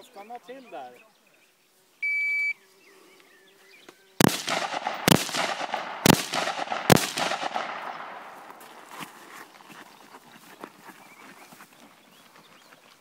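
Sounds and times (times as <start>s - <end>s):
rifle shots with echo: 4.2s - 8.6s.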